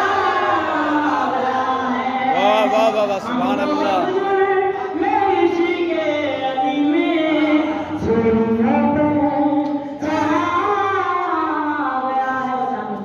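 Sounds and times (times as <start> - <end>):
person chanting: 0.0 - 4.4.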